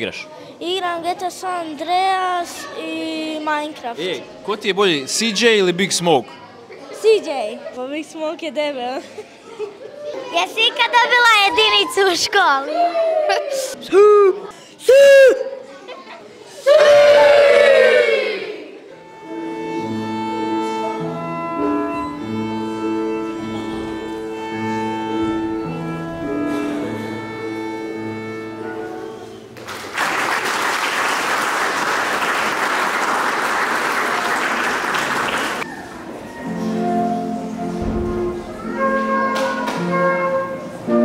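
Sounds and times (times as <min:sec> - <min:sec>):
flute playing: 0:18.9 - 0:29.5, 0:35.7 - 0:41.0
instrumental music of held notes: 0:19.0 - 0:29.5, 0:36.2 - 0:41.0
audience applause: 0:29.6 - 0:35.7.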